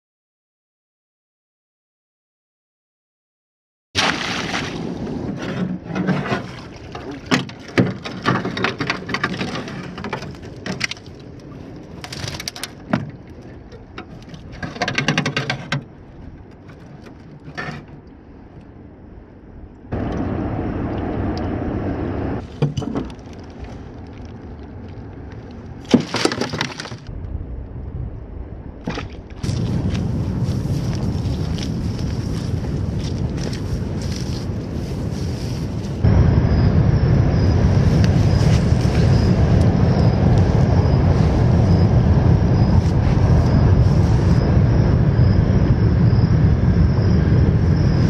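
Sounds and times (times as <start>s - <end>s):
water splashing: 4.0s - 5.4s, 6.0s - 14.6s
wire trap clattering against boat: 12.0s - 18.0s.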